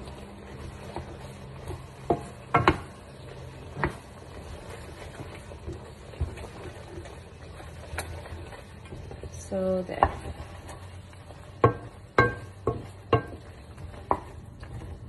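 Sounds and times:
wooden spatula scraping a pan: 0:00.0 - 0:15.0
spatula knocking against pan: 0:02.0 - 0:03.0, 0:11.6 - 0:13.5.

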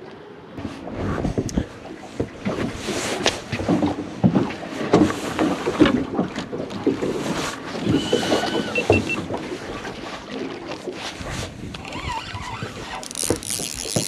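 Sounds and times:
wind: 0:00.0 - 0:14.0
water noise: 0:00.2 - 0:14.0
high steady beep: 0:08.7 - 0:09.2
knocks and clunks of gear: 0:11.7 - 0:14.0.

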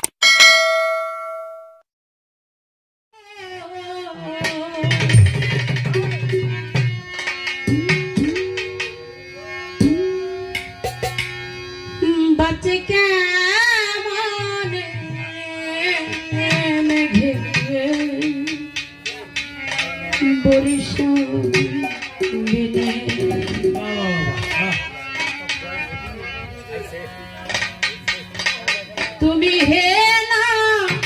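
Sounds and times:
held instrument tones: 0:00.2 - 0:01.8, 0:18.3 - 0:28.9
woman singing: 0:03.4 - 0:05.1, 0:12.0 - 0:18.7, 0:20.2 - 0:23.8, 0:29.2 - 0:31.0
hand drums beating: 0:04.4 - 0:09.0, 0:09.8 - 0:11.4, 0:16.1 - 0:25.7.

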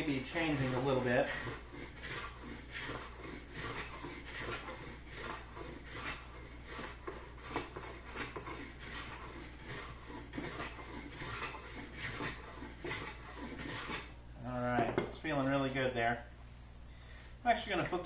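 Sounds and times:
hand plane cutting wood: 0:00.0 - 0:14.2.

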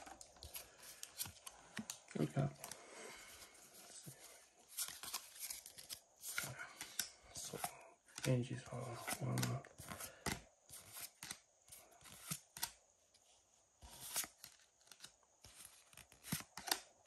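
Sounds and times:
trading cards flipping and snapping: 0:00.0 - 0:02.8, 0:04.7 - 0:12.8, 0:13.9 - 0:16.9.

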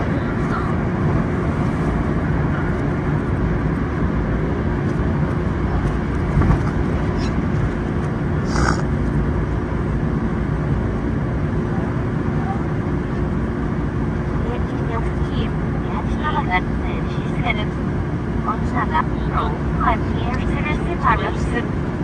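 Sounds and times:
train running rumble: 0:00.0 - 0:22.0
faint steady hum: 0:07.1 - 0:22.0.

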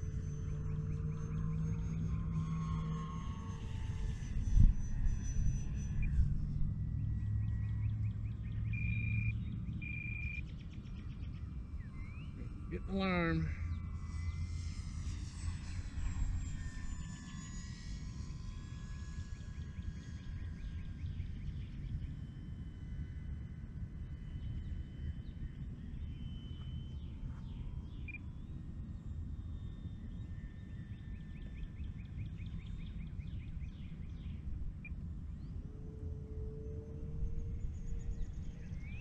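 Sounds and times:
model plane electric motor whine: 0:00.0 - 0:09.8, 0:10.7 - 0:39.0
wind on microphone: 0:02.1 - 0:08.1.

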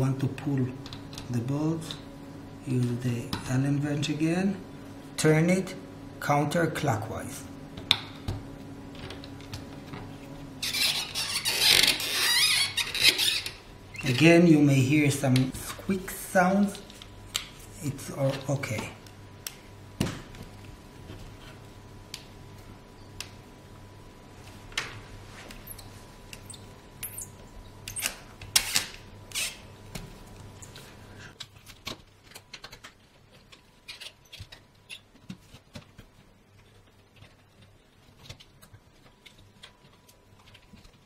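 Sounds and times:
bolts squeaking and clicking: 0:33.8 - 0:35.2.

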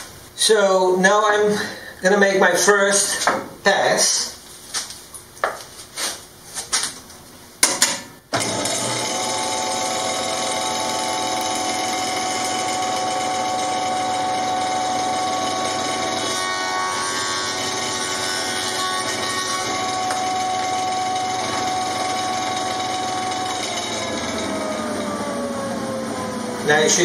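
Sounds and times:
jointer motor running: 0:08.3 - 0:27.0.

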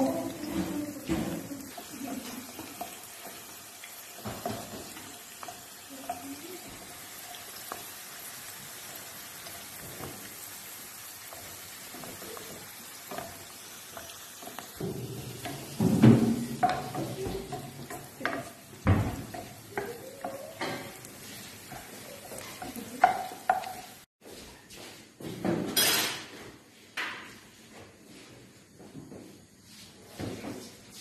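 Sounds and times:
potato slices sizzling in oil: 0:00.0 - 0:24.1
wooden utensils tapping and scraping: 0:00.0 - 0:24.1.

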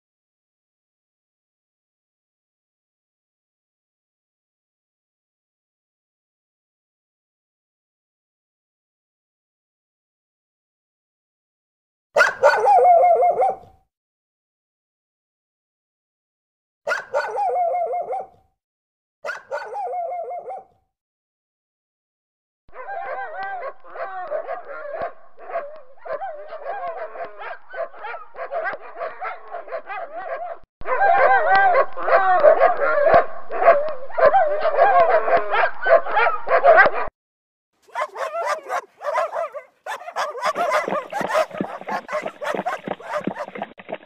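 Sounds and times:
dog whining and yipping: 0:12.2 - 0:13.6, 0:16.9 - 0:18.3, 0:19.3 - 0:20.6, 0:37.9 - 0:43.5.

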